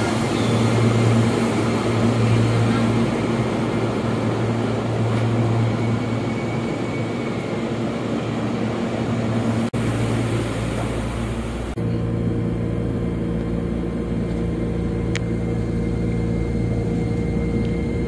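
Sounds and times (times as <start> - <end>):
electric train low hum: 0.0 - 18.0.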